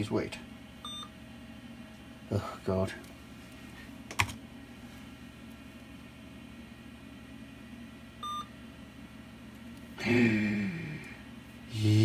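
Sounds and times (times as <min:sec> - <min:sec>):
computer humming: 0:00.0 - 0:12.0.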